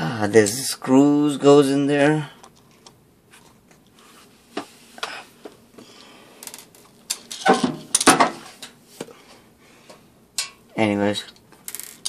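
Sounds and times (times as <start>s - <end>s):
metal screws clattering on tile: 11.7s - 12.0s.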